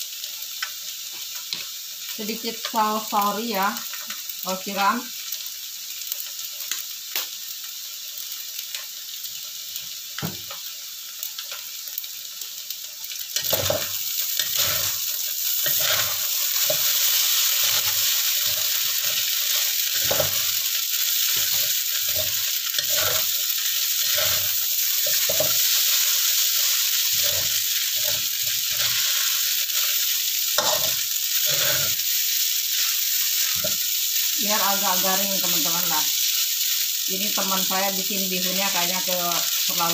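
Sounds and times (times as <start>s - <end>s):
noodles sizzling in a wok: 0.0s - 39.9s
spatula scraping and knocking pan: 13.4s - 15.0s, 15.6s - 19.3s, 19.9s - 20.6s, 21.3s - 23.4s, 24.0s - 25.8s.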